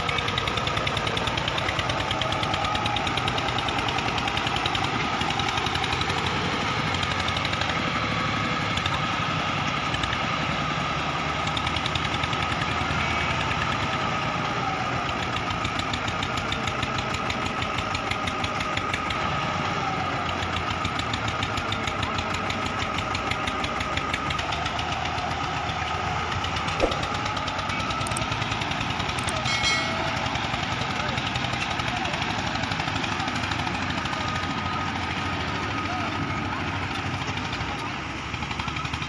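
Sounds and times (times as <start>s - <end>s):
tractor engine chugging: 0.0s - 39.0s
thin steady whine: 29.2s - 30.4s.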